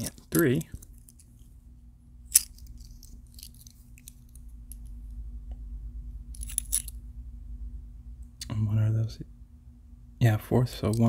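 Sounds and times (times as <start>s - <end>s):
faint low hum: 0.0s - 11.0s
coins clinking and sliding: 6.4s - 7.0s.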